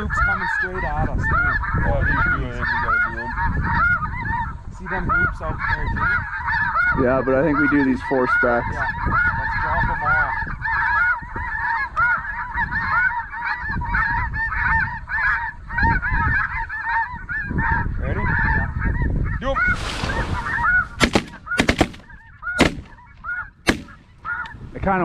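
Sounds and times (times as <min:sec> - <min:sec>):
goose yelping calls: 0:00.0 - 0:24.6
low wind rumble: 0:00.0 - 0:25.0
sharp cracks: 0:20.9 - 0:24.6.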